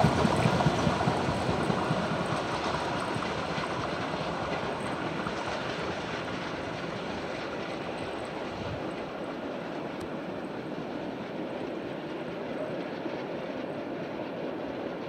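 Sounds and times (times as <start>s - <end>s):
steam locomotive exhaust beats: 0.0s - 15.0s.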